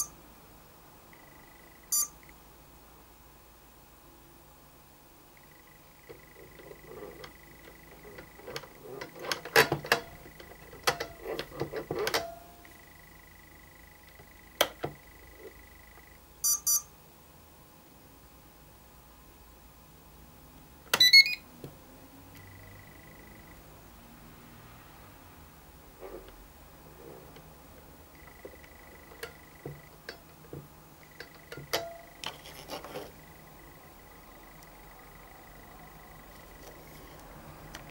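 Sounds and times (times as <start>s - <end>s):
faint high whine: 0.0s - 37.9s
double electronic beep: 1.2s - 2.2s, 16.4s - 16.9s, 21.0s - 21.4s.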